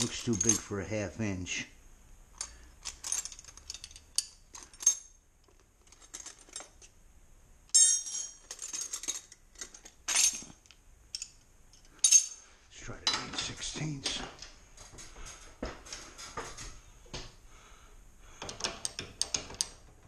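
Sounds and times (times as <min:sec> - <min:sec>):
metal wrenches clinking: 0:00.0 - 0:00.8, 0:02.4 - 0:06.9, 0:07.7 - 0:12.5.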